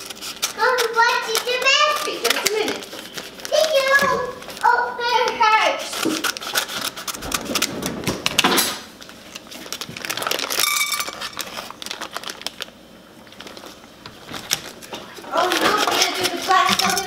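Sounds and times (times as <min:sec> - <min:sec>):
scissors snipping paper bag: 0:00.0 - 0:07.7, 0:14.4 - 0:17.0
paper bag rustling: 0:00.0 - 0:17.0.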